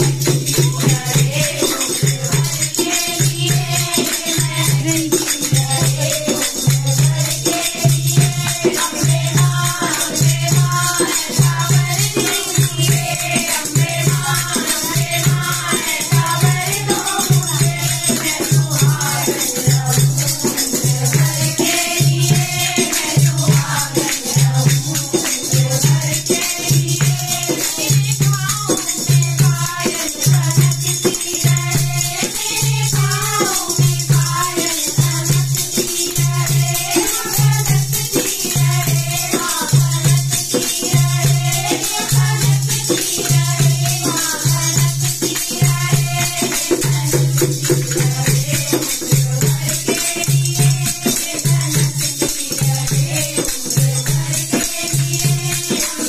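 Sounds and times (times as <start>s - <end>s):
hand drum beat: 0.0s - 56.0s
rattling hand percussion: 0.0s - 56.0s
women singing devotional song: 0.0s - 56.0s
hand claps: 29.6s - 56.0s.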